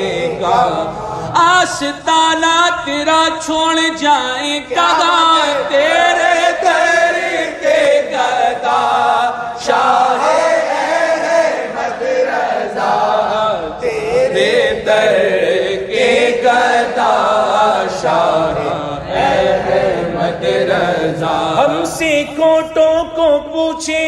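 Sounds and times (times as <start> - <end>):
men singing devotional song: 0.0 - 24.0
singers breathing: 0.9 - 1.4.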